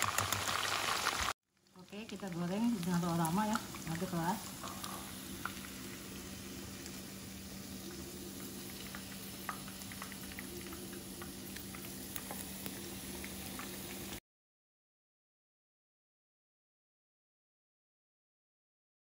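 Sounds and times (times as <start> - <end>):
chicken sizzling in oil: 0.0 - 14.2.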